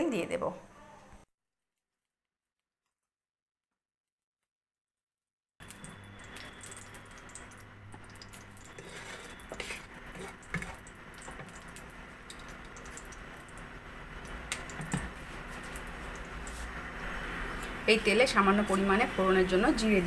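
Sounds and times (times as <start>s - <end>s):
oil sizzling in a wok: 5.6s - 19.8s.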